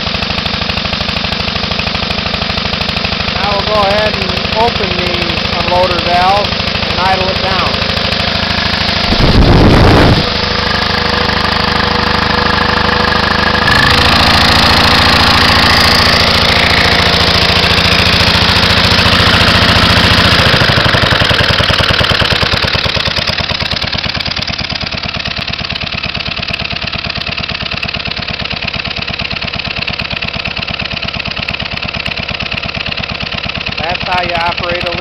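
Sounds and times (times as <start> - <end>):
air compressor engine running: 0.0 - 35.0
loud rush of air: 8.9 - 11.5.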